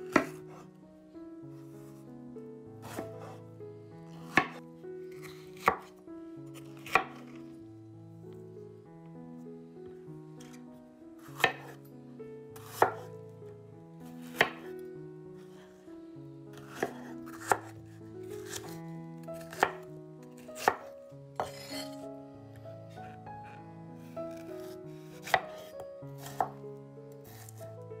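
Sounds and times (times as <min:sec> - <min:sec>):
soft background music: 0:00.0 - 0:28.0
knife chopping on wooden board: 0:00.1 - 0:00.4, 0:02.8 - 0:03.4, 0:04.2 - 0:04.6, 0:05.2 - 0:05.9, 0:06.6 - 0:07.2, 0:11.3 - 0:11.8, 0:12.6 - 0:13.1, 0:14.2 - 0:14.7, 0:16.6 - 0:17.7, 0:18.4 - 0:22.0, 0:24.3 - 0:26.6, 0:27.3 - 0:27.6.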